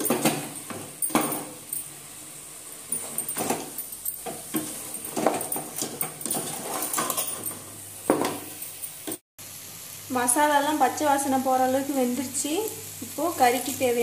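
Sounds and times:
faint frying sizzle: 0:00.0 - 0:14.0
metal ladle scraping a pot: 0:04.5 - 0:07.6.

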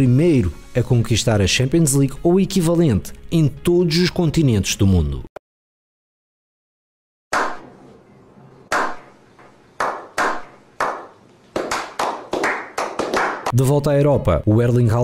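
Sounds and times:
hand claps with echo: 0:07.4 - 0:07.6, 0:08.7 - 0:09.1, 0:09.8 - 0:13.6.

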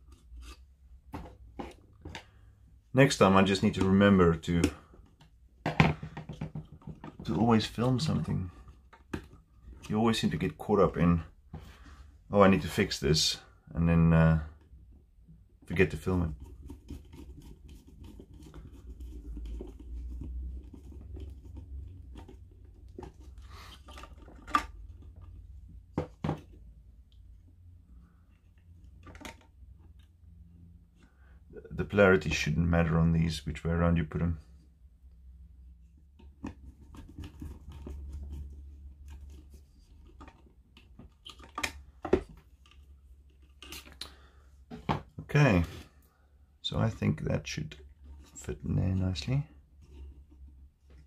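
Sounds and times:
plastic clicks and scrapes: 0:36.1 - 0:44.1.

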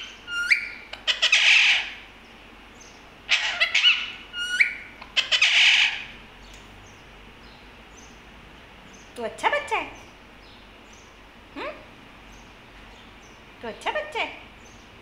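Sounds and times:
parakeet screeching: 0:00.3 - 0:02.0, 0:03.3 - 0:06.2.

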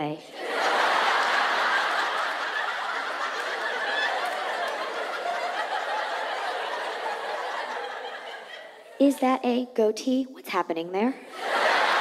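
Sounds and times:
audience laughing: 0:00.2 - 0:09.0, 0:11.3 - 0:12.0.

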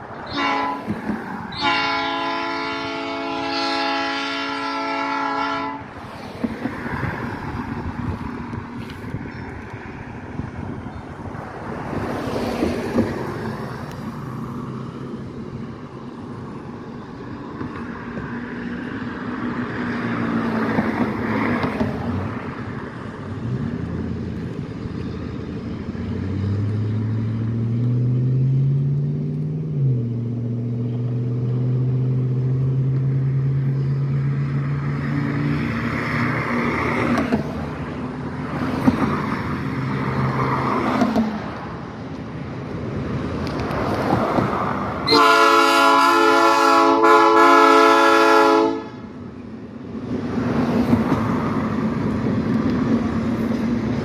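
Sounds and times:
vehicles whooshing past: 0:00.0 - 0:54.0
engine hum shifting gear: 0:21.0 - 0:40.1.

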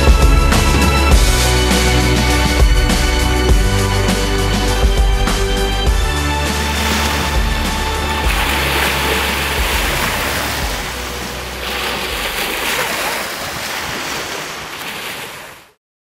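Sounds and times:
low background music: 0:00.0 - 0:13.0
small waves washing on shore: 0:06.4 - 0:15.8.

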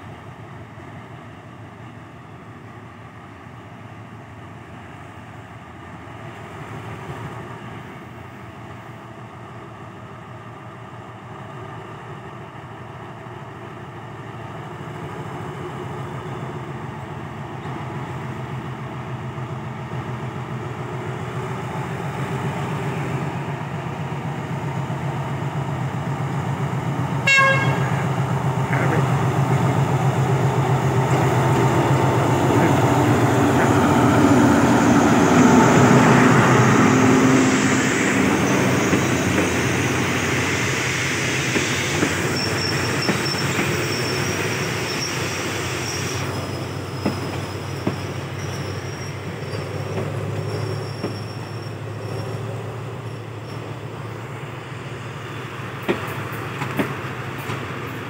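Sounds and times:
diesel locomotive engine rumble: 0:00.0 - 0:58.0
train horn toot: 0:27.2 - 0:28.1.

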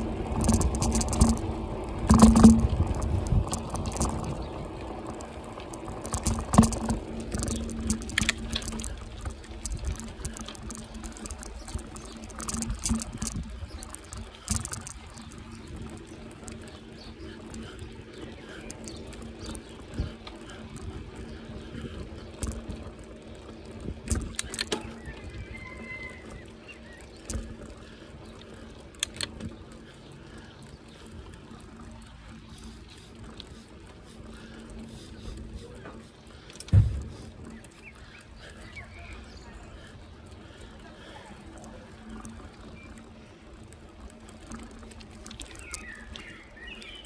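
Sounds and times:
low hum: 0:00.0 - 0:25.2
bicycle rattling and clicking: 0:00.0 - 0:47.0.

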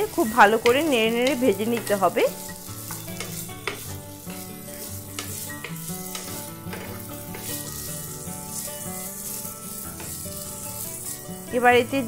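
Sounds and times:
vegetables sizzling in oil: 0:00.0 - 0:12.0
wooden spatula scraping pan: 0:00.0 - 0:12.0.

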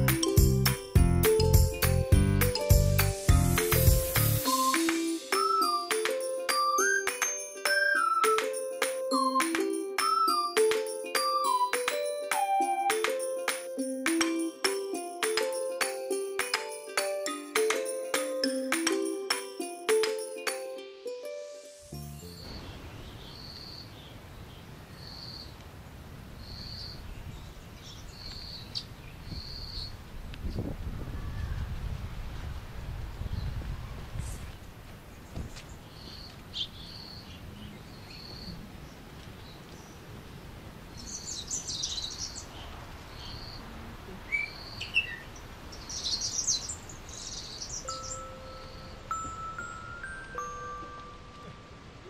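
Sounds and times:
chime-like background music: 0:00.0 - 0:22.5, 0:47.8 - 0:52.0
songbirds chirping: 0:22.2 - 0:30.1, 0:35.0 - 0:49.3.

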